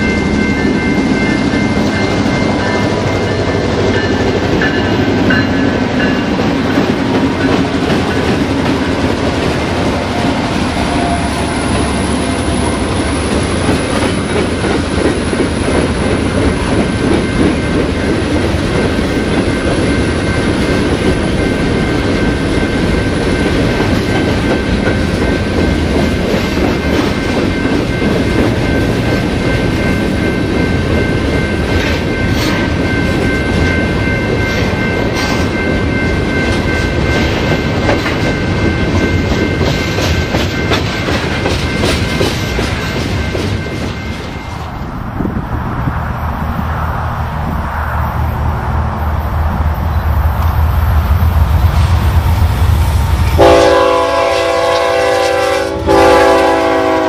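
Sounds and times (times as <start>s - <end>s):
clickety-clack over rail joints: 0.0s - 45.4s
train wheels rumbling on rail: 0.0s - 57.0s.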